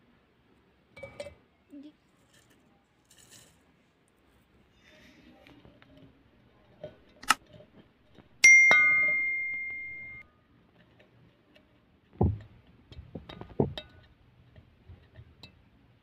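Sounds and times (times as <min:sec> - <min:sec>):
light glass clinks: 0:01.0 - 0:01.4, 0:08.4 - 0:10.2
bell-like notification ding: 0:08.4 - 0:10.2
muddler thudding in glass jar: 0:08.4 - 0:10.2.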